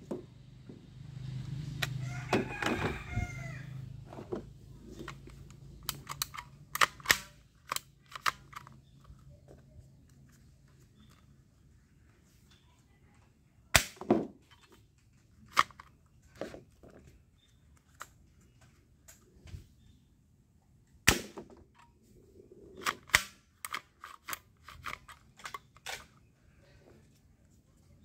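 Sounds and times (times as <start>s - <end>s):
plastic handling clicks: 5.0s - 10.4s.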